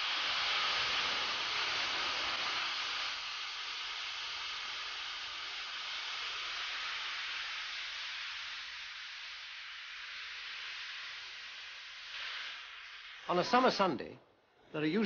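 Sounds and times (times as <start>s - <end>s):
steam locomotive venting steam: 0.0s - 14.1s.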